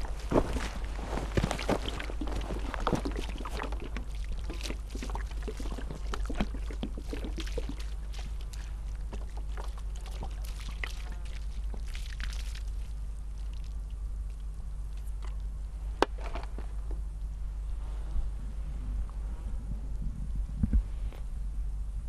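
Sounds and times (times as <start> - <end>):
dirt pattering onto earth: 0.0 - 14.4
low hum: 0.0 - 22.0.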